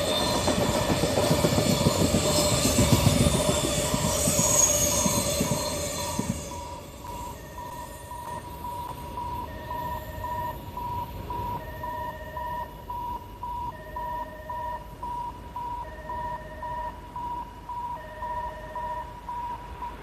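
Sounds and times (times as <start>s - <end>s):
lower two-tone alarm sound: 0.0s - 20.0s.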